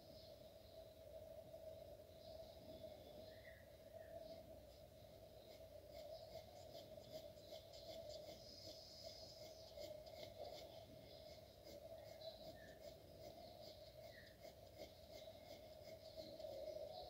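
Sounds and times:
pencil scratching on paper: 0:05.4 - 0:17.0.

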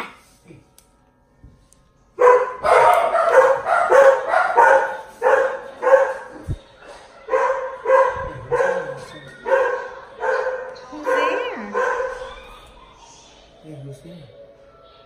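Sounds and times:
animal barking: 0:02.2 - 0:06.4, 0:07.3 - 0:13.1.

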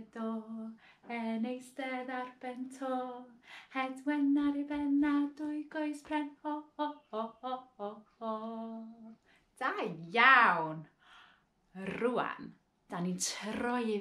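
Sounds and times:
woman singing unaccompanied: 0:00.0 - 0:09.2.

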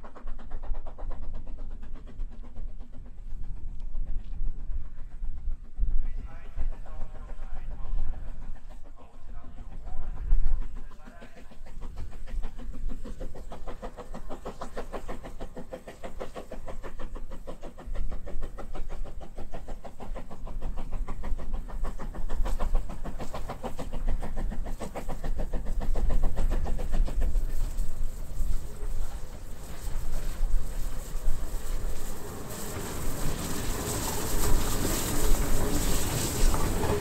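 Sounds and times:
steam locomotive exhaust chuffs: 0:00.0 - 0:37.0
wind rumbling on microphone: 0:03.4 - 0:08.8.

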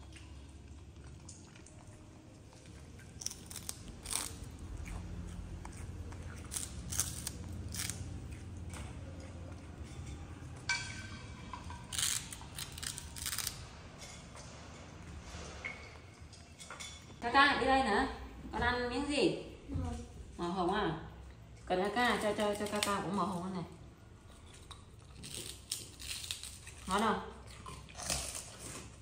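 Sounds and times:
monkey crunching cracker: 0:02.5 - 0:09.4, 0:11.6 - 0:13.7, 0:24.4 - 0:29.0.

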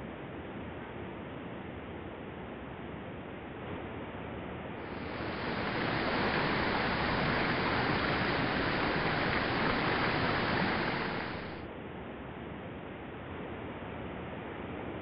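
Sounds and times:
waterfall splashing into basin: 0:04.9 - 0:11.6.

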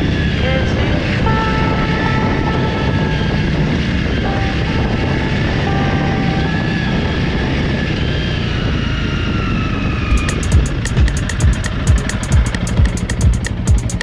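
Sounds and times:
faint whining tones: 0:00.0 - 0:10.8
motorcycle engine rumbling: 0:00.0 - 0:14.0.

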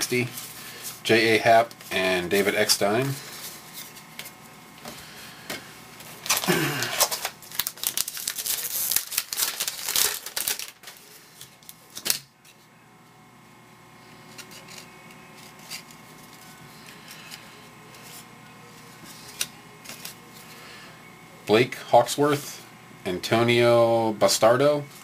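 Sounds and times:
wrapper snapping: 0:06.2 - 0:12.3
wrapper tearing and crinkling: 0:06.2 - 0:12.3.

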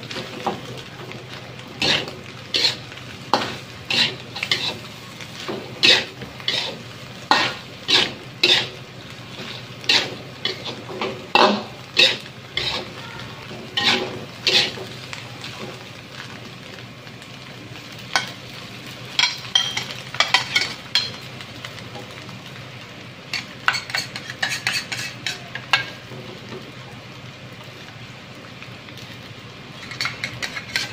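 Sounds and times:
food sizzling: 0:00.0 - 0:30.9
metal ladle scraping a wok: 0:01.8 - 0:02.8, 0:03.9 - 0:04.8, 0:05.8 - 0:08.7, 0:09.4 - 0:10.8, 0:11.4 - 0:12.9, 0:13.7 - 0:14.8, 0:23.7 - 0:25.3.

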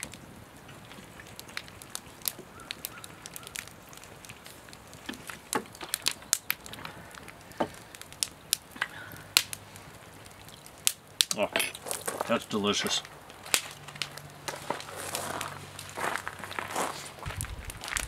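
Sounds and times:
wood fire crackling and popping: 0:00.0 - 0:18.0.

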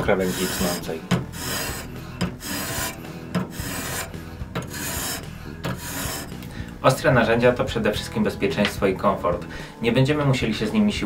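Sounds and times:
sharpening stone rasping on knife: 0:00.1 - 0:06.4.

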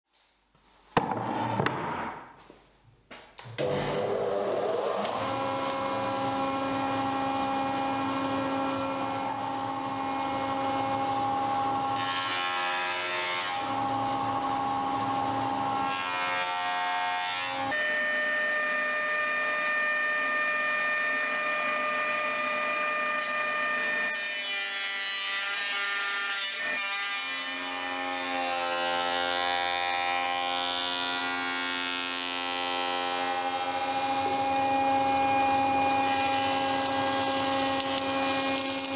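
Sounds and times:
woodworking machine motor whine: 0:03.5 - 0:24.1, 0:29.4 - 0:38.9
saw cutting wood: 0:03.6 - 0:38.9.

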